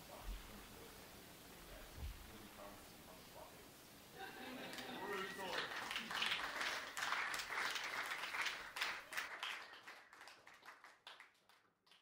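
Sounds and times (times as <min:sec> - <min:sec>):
applause: 0:04.7 - 0:12.0.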